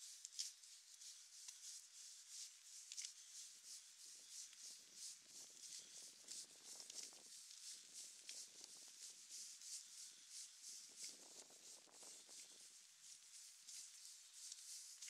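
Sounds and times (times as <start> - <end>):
rain hiss: 4.1 - 15.0.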